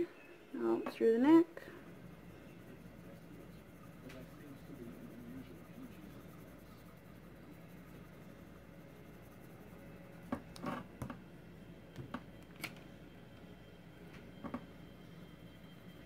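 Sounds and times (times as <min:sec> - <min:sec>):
low steady hum: 0:00.0 - 0:16.0
colored pencil scratching paper: 0:01.8 - 0:10.7.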